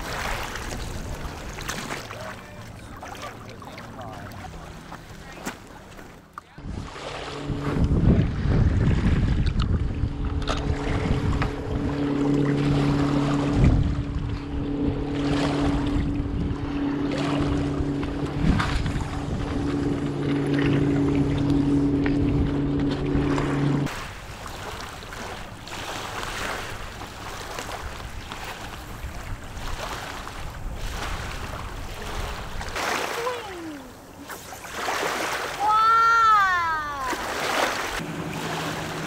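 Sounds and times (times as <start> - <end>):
low engine-like hum: 0.0 - 34.8, 35.4 - 39.0
surf washing: 0.0 - 39.0
wind buffeting the microphone: 6.6 - 24.0, 26.5 - 32.9.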